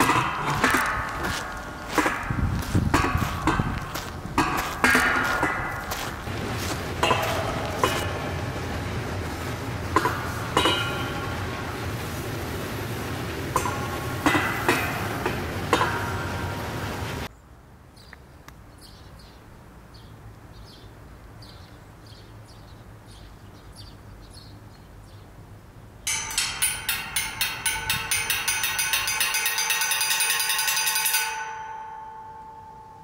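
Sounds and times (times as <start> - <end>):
loud alarm bell ringing: 26.1 - 33.0.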